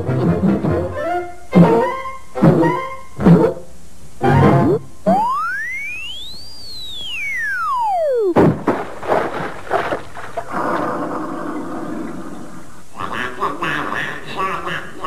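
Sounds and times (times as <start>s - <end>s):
cartoon slide whistle: 4.2s - 8.4s
crash of knocks: 8.3s - 10.4s
water splash: 8.4s - 10.6s.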